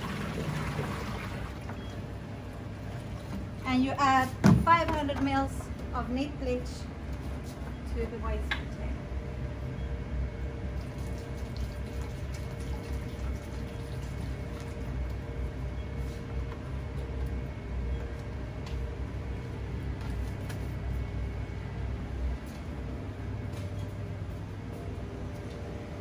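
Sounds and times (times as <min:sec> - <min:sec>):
liquid pouring and sloshing: 0:00.0 - 0:01.9, 0:10.8 - 0:15.3
steady low hum: 0:00.0 - 0:26.0.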